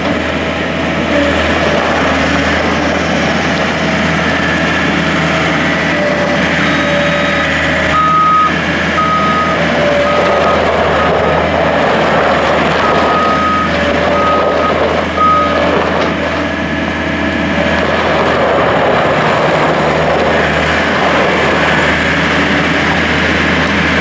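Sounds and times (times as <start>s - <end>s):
diesel engine running: 0.0s - 24.0s
tires on gravel: 0.0s - 24.0s
backup alarm beeping: 6.6s - 11.1s, 12.8s - 15.6s.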